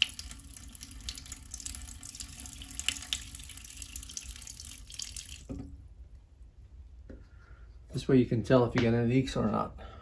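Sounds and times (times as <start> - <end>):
water pouring into toilet tank: 0.0 - 5.7.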